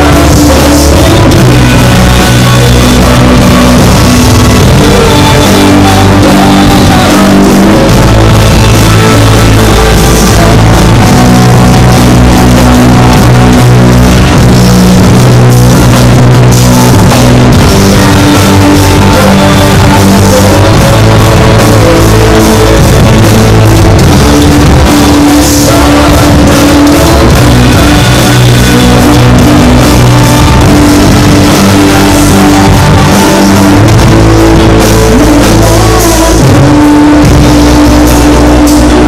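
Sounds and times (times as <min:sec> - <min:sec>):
woman singing into a microphone: 0:00.0 - 0:13.8
backing singers: 0:00.0 - 0:39.0
drum kit: 0:00.0 - 0:39.0
electric bass: 0:00.0 - 0:39.0
electric guitar: 0:00.0 - 0:39.0
keyboard: 0:00.0 - 0:39.0.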